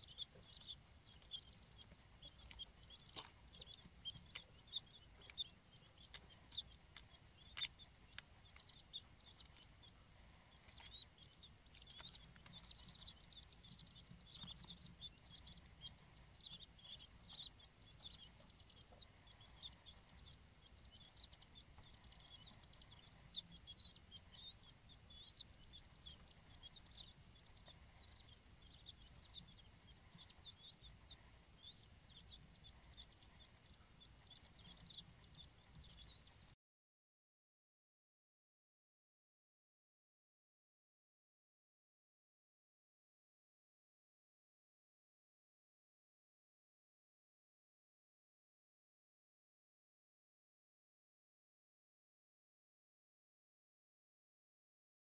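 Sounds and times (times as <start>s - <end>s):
chicks peeping: 0.0s - 36.6s.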